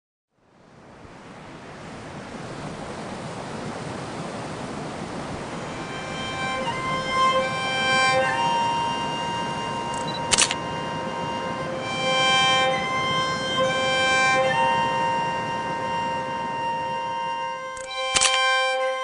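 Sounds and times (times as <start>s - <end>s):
rushing white water: 0.4s - 19.0s
fiddle music: 4.8s - 19.0s
sharp click: 10.0s - 10.6s, 17.8s - 18.4s.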